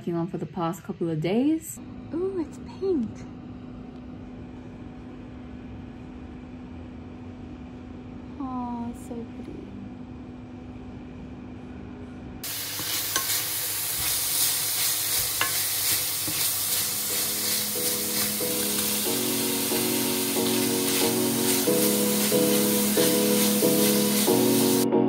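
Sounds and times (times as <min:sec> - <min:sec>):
meat sizzling in a frying pan: 0:12.4 - 0:24.9
wooden spatula scraping: 0:12.5 - 0:24.8
soft piano music: 0:16.7 - 0:25.0.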